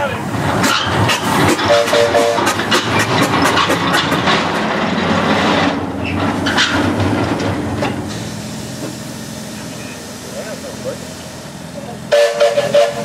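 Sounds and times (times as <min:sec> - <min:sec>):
wheels ticking on rails: 0:00.6 - 0:08.2
rush of exhausting air: 0:08.0 - 0:13.0.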